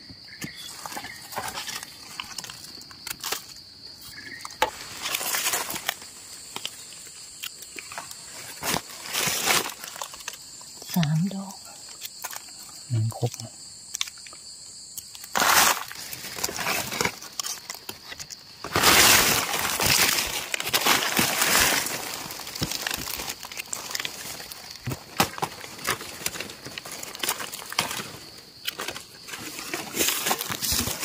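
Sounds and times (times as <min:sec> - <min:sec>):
dry leaves rustling and crackling: 0:04.5 - 0:07.1, 0:07.8 - 0:10.5, 0:15.3 - 0:31.0.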